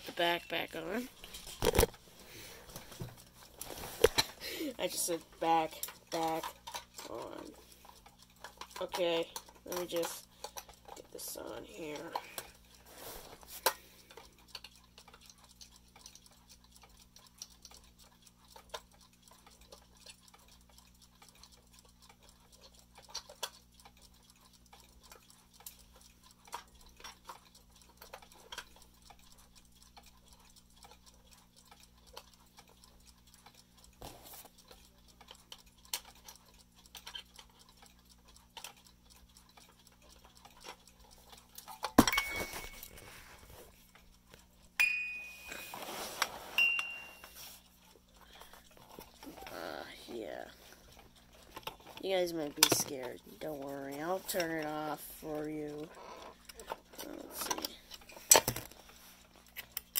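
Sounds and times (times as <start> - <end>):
clock cover clicks and knocks: 1.2 - 2.0, 41.6 - 43.0, 52.5 - 53.0, 57.4 - 58.8.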